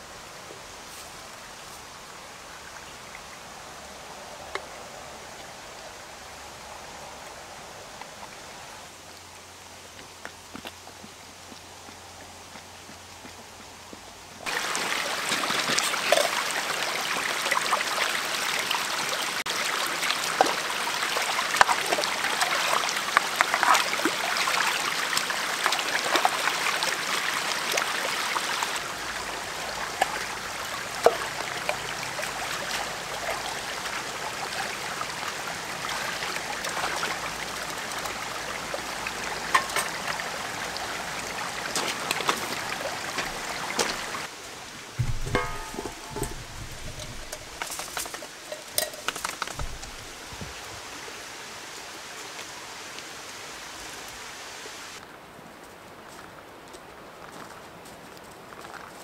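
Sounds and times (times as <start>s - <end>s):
stream trickling over pebbles: 0.0s - 59.0s
pan splashing in water: 45.0s - 50.3s.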